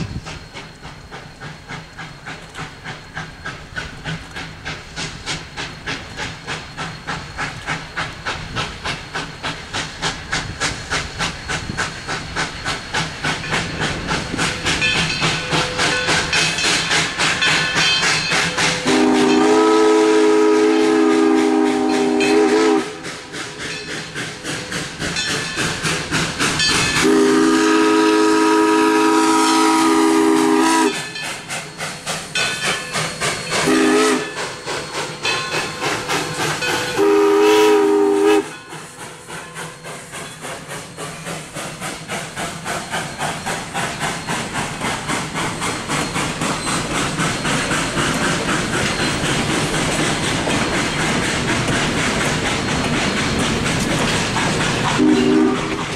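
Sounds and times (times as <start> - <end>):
steam exhaust beats: 0.0 - 55.9
train wheels clacking over rail joints: 0.0 - 55.9
steam locomotive chime whistle: 11.2 - 41.5, 54.9 - 55.9.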